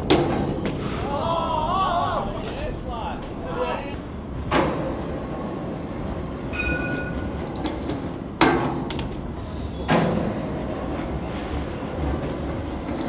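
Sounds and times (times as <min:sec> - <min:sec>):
steady rolling rumble: 0:00.0 - 0:09.6
brief high ring: 0:06.5 - 0:07.2.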